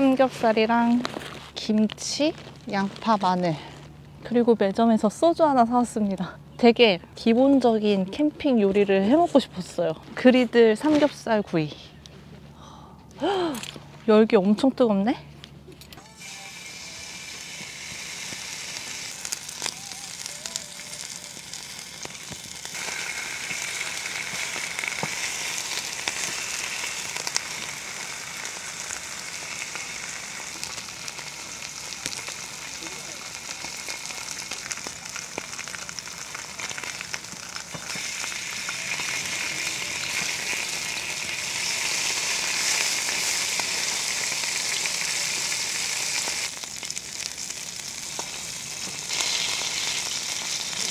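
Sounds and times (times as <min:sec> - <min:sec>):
meat sizzling on a griddle: 0:16.1 - 0:50.9.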